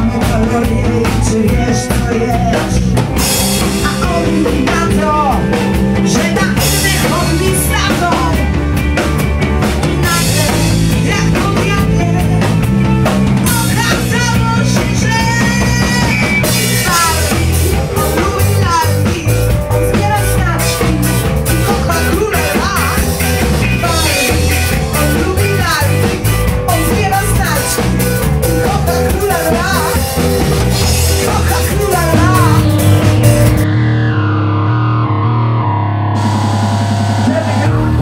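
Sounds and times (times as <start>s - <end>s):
woman singing into a microphone: 0.0s - 2.9s, 3.7s - 5.4s, 6.0s - 8.5s, 10.0s - 12.5s, 13.5s - 23.0s, 23.8s - 27.8s, 28.6s - 30.0s
drum kit: 0.0s - 38.0s
electric guitars: 0.0s - 38.0s.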